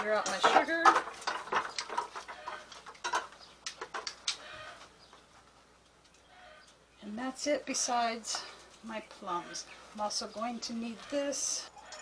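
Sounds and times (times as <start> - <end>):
utensils clinking on plastic bucket: 0.0 - 4.1
chickens clucking: 0.1 - 5.4.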